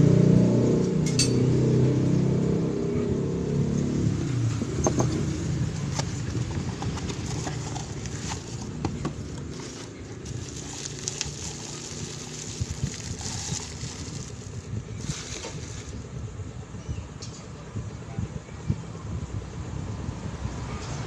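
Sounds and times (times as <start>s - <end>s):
bubble wrap rustling: 6.0s - 16.0s.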